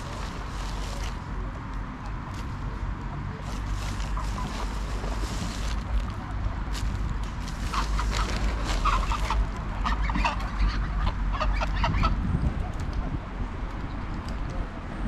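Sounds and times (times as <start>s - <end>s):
geese calling softly: 7.6s - 12.2s.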